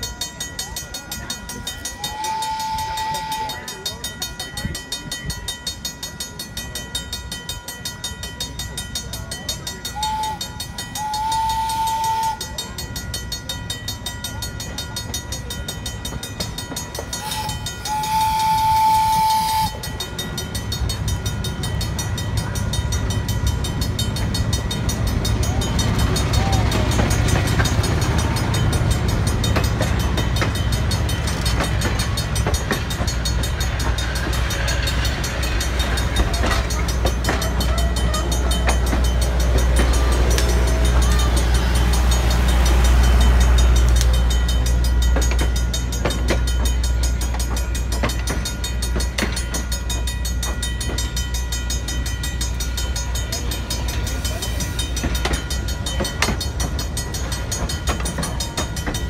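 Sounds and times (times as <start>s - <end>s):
level-crossing bell ringing: 0.0s - 59.0s
train wheels clattering: 0.0s - 59.0s
steam locomotive whistle: 1.8s - 4.1s, 9.9s - 12.9s, 17.1s - 20.6s.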